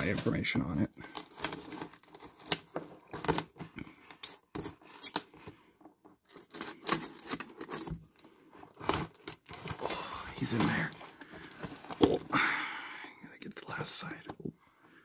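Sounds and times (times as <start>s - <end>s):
tape tearing: 1.0s - 5.4s, 6.2s - 11.0s
knife cutting packing tape: 6.3s - 8.0s.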